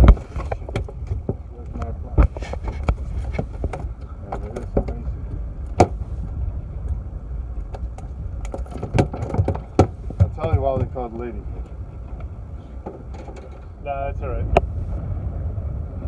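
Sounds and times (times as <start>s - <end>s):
low rumble: 0.0s - 16.0s
knocks on fiberglass deck: 5.8s - 6.0s, 8.5s - 11.2s.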